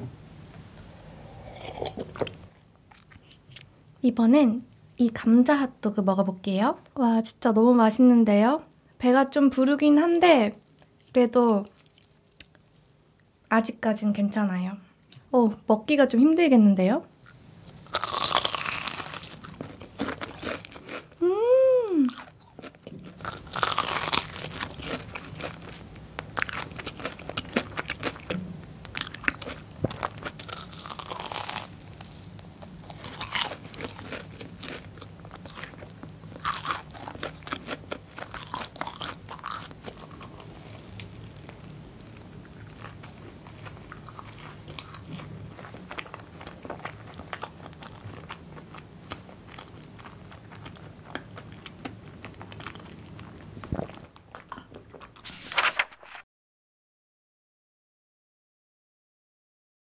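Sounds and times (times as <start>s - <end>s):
crunchy bites and chewing: 17.2s - 21.2s, 22.1s - 55.4s.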